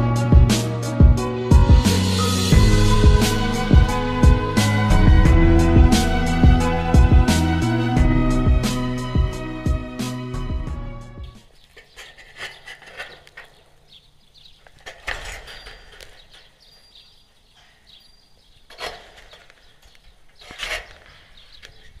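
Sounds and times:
goats rustling at microphone: 0:11.3 - 0:22.0.

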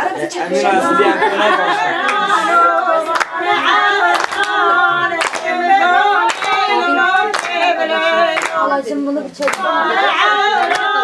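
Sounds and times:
women singing unaccompanied: 0:00.0 - 0:11.0
hand claps: 0:02.0 - 0:02.3, 0:03.1 - 0:04.6, 0:05.2 - 0:05.6, 0:06.2 - 0:08.7, 0:09.4 - 0:09.8, 0:10.4 - 0:11.0.

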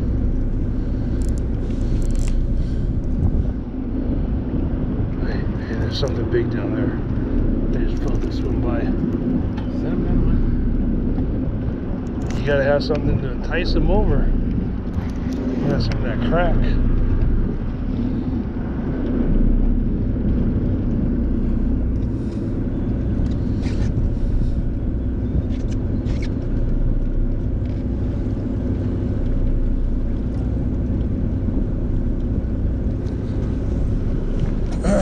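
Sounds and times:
boat engine humming: 0:00.0 - 0:35.0
faint ticks: 0:00.3 - 0:02.4.

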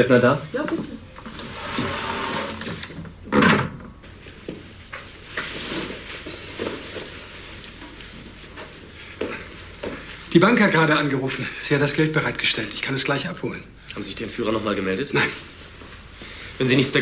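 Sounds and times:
door opening and shutting: 0:01.2 - 0:03.9.

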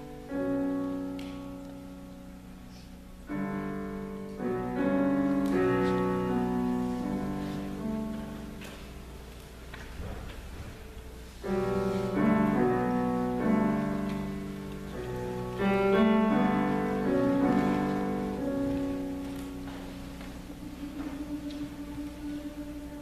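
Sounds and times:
girls' choir singing: 0:15.9 - 0:23.0.

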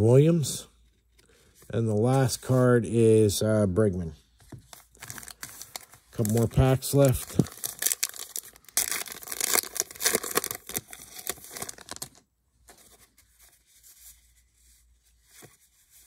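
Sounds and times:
cards rustling: 0:04.4 - 0:16.0
wrapper tearing and crinkling: 0:04.9 - 0:12.2.

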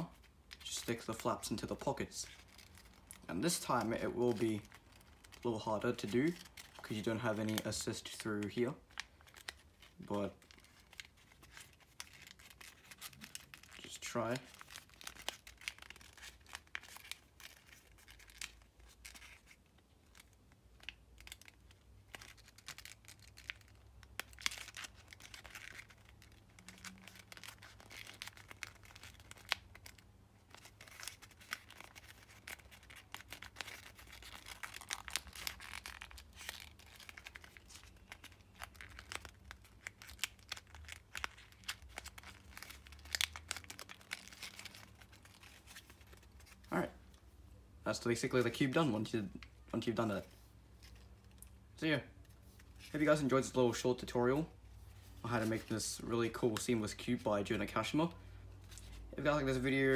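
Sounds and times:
paper crinkling and rustling: 0:00.0 - 0:46.8.

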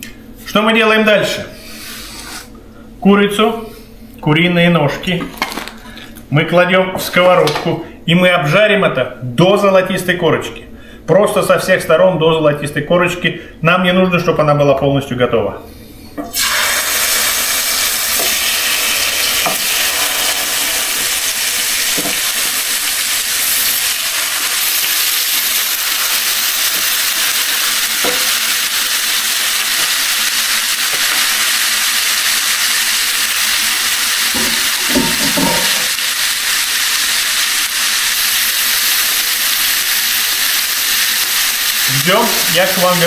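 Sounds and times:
chicken frying in hot oil: 0:16.3 - 0:43.0.

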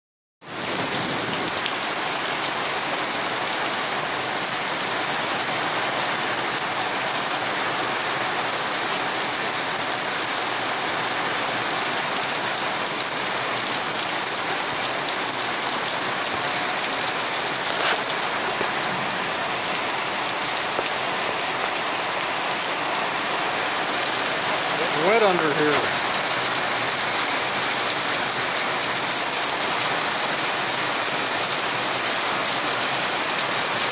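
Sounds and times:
heavy rain splashing into puddles: 0:00.4 - 0:33.9.

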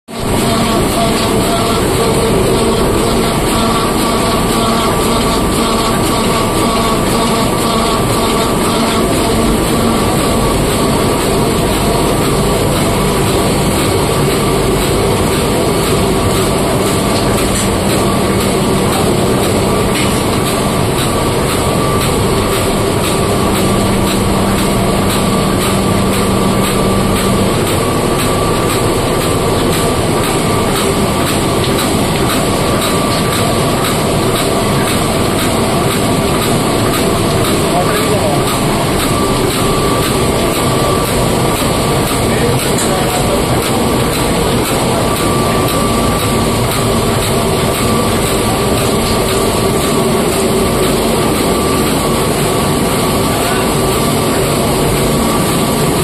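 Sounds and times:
printing press clatter: 0:00.1 - 0:56.0
printing press whine: 0:00.1 - 0:56.0.

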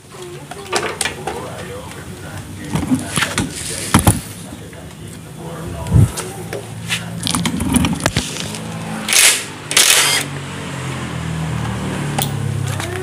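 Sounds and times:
impact wrench motor running: 0:09.1 - 0:10.3.

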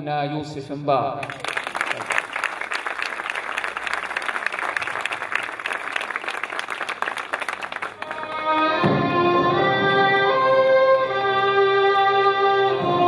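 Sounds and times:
audience applauding: 0:01.2 - 0:08.7
instrumental music with held notes: 0:08.0 - 0:13.0.

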